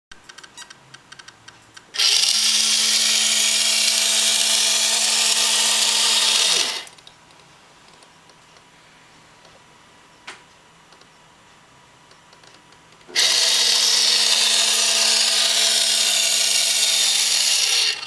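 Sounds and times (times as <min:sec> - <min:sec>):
electric winch whirring: 0:02.0 - 0:06.9, 0:13.1 - 0:18.0.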